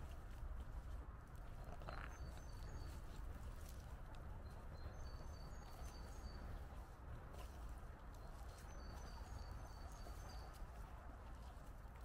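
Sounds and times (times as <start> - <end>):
footsteps on a path: 0.0 - 12.0
small birds chirping: 0.0 - 12.0.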